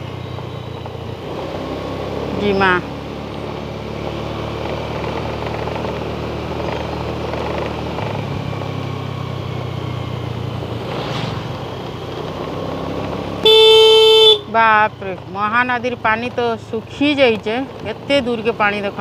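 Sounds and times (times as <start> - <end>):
vehicle engine and road noise: 0.0 - 19.0
vehicle horn honking: 13.4 - 14.6.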